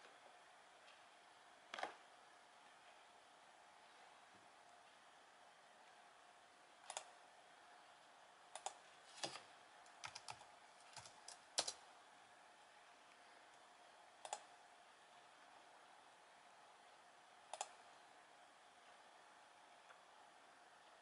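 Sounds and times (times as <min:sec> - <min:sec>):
faint steady hum: 0:00.0 - 0:21.0
keyboard typing: 0:08.6 - 0:11.8
mouse clicks: 0:14.2 - 0:14.5, 0:17.5 - 0:17.8.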